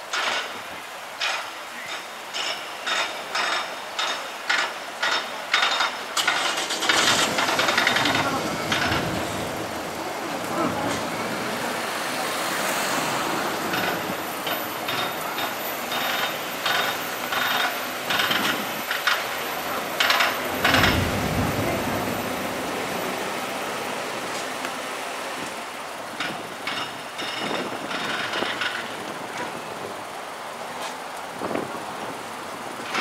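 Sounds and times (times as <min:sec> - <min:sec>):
road traffic noise: 0:00.0 - 0:33.0
turboprop engine drone: 0:06.6 - 0:33.0
heavy low rumble: 0:06.8 - 0:12.6, 0:13.3 - 0:25.4.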